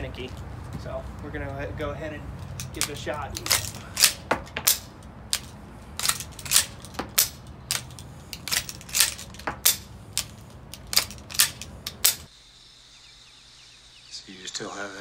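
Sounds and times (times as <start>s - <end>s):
rifle lever action clicking: 2.4s - 12.3s.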